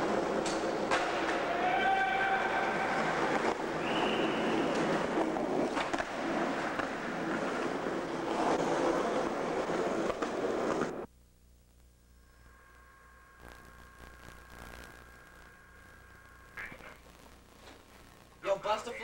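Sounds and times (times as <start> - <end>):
skateboard wheels rolling on concrete: 0.0 - 11.1
skateboard clacks: 2.5 - 11.0
faint hiss: 11.2 - 19.0.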